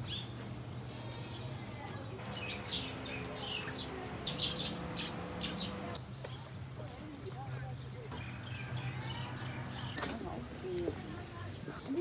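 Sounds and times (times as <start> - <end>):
small birds chirping: 1.8 - 6.6.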